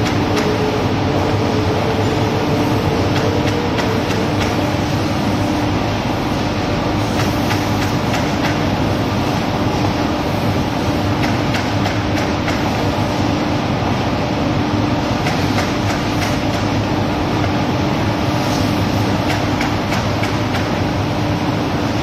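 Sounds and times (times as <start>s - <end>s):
machine running with hum: 0.0s - 22.0s
mechanism clicks and clacks: 2.9s - 5.0s, 7.1s - 8.9s, 11.0s - 12.9s, 15.2s - 16.8s, 19.0s - 20.9s.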